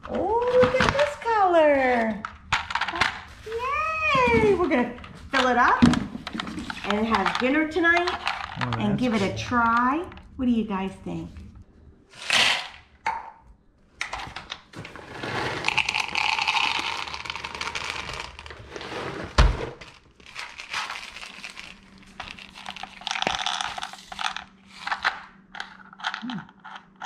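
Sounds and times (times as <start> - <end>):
dry kibble rattling in plastic: 6.2 - 8.8, 14.8 - 18.8, 19.8 - 27.0.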